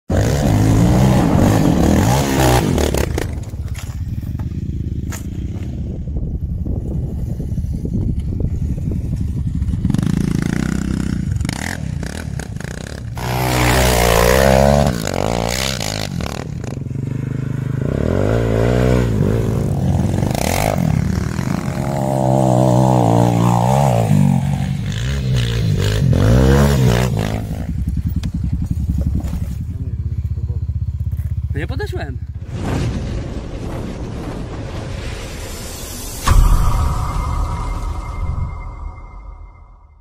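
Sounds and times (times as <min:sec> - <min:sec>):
quad bike engine revving: 0:00.1 - 0:03.9, 0:09.7 - 0:31.6.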